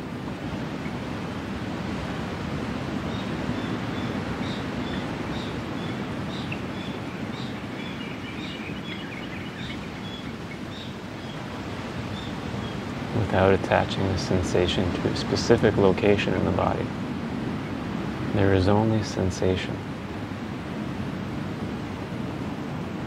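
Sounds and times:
wind: 0.0 - 23.0
bird chirping: 3.1 - 11.5.

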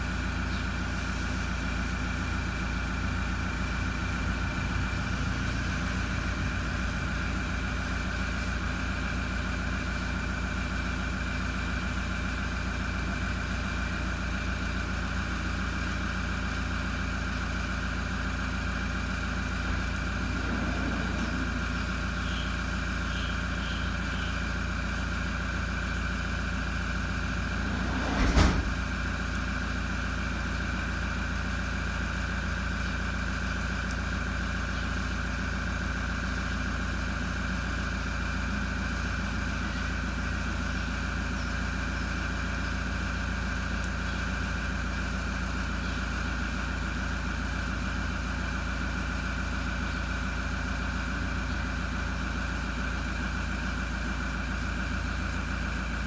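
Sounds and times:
steady mechanical hum: 0.0 - 56.0
short thump: 28.0 - 28.8.

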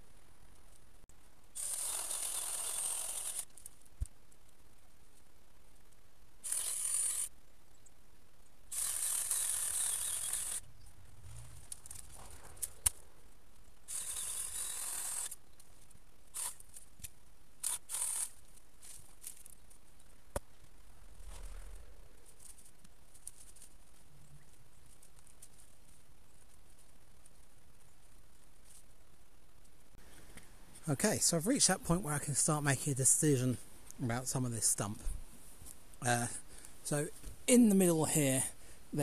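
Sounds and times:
saw cutting through stems: 1.6 - 3.5, 6.4 - 7.3, 8.7 - 10.6, 13.9 - 15.4
sharp wood cracks: 11.3 - 28.9.

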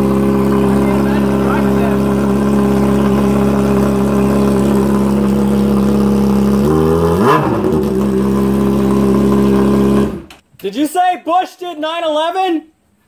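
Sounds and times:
motorcycle engine idling loudly: 0.0 - 10.4.

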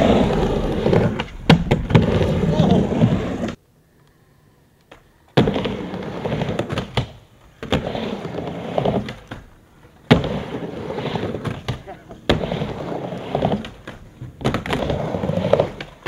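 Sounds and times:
skateboard wheels rolling on ramp: 0.0 - 3.6, 4.9 - 16.0.

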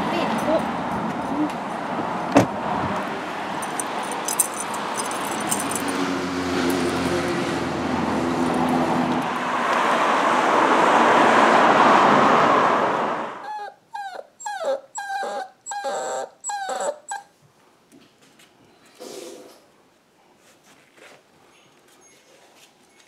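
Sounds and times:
loud rushing noise: 4.9 - 13.4
puppy whimpering: 13.4 - 17.3.

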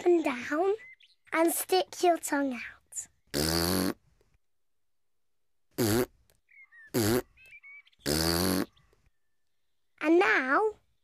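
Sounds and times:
buzzing blown raspberries: 3.2 - 4.1, 5.8 - 6.2, 6.9 - 7.4, 8.0 - 8.8.

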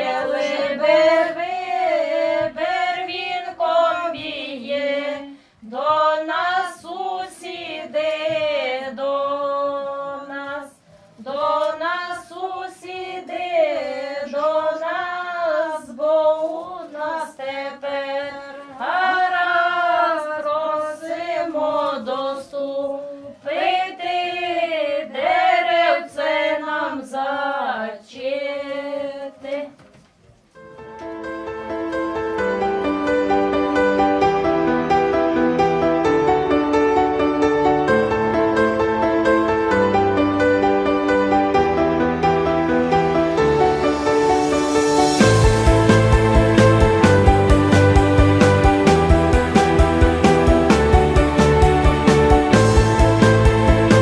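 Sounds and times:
women singing unaccompanied: 0.0 - 29.9.

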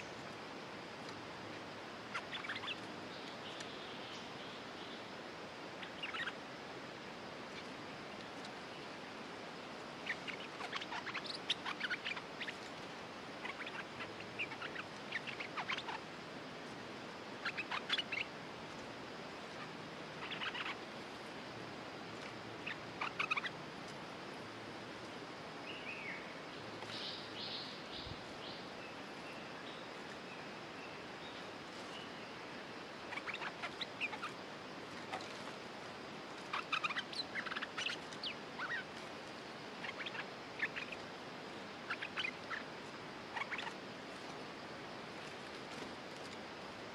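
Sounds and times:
bulbuls chattering calls: 5.8 - 6.4, 19.6 - 20.8, 33.0 - 34.4, 36.5 - 39.0, 39.7 - 43.8.

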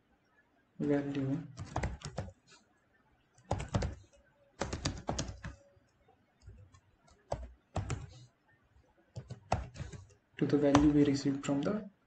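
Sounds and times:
typing on computer keyboard: 1.5 - 2.4, 3.4 - 5.7, 6.4 - 8.2, 9.1 - 11.0.

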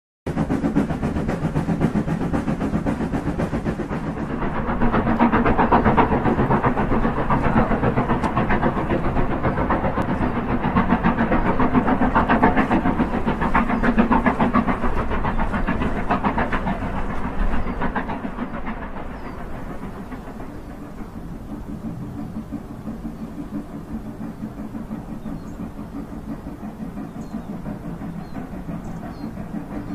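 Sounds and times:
steam locomotive exhaust beats: 0.3 - 29.9
train wheels rumbling on track: 0.3 - 29.9.

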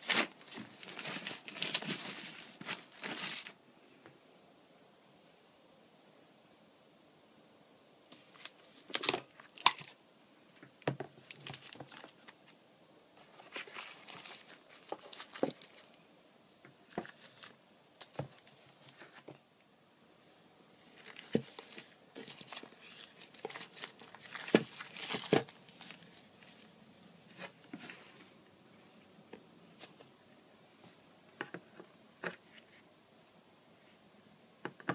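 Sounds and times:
packaging crinkling: 0.0 - 3.5, 8.2 - 10.0, 11.2 - 12.4, 13.4 - 16.0, 20.8 - 27.5.

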